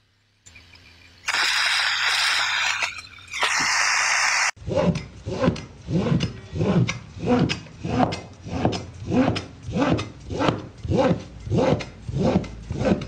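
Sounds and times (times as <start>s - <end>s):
cleaver scraping: 4.8s - 13.0s.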